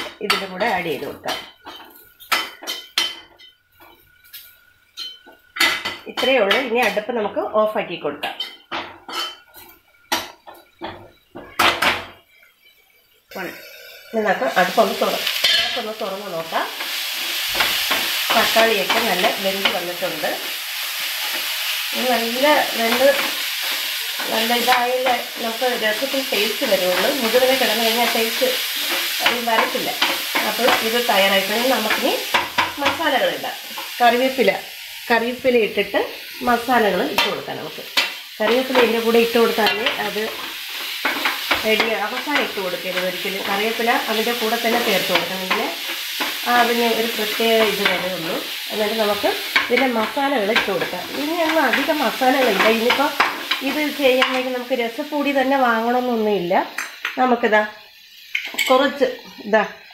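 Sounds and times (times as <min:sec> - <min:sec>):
oil sizzling: 0:00.0 - 0:59.9
spatula scraping frying pan: 0:13.4 - 0:15.9, 0:16.6 - 0:34.9, 0:36.2 - 0:54.5.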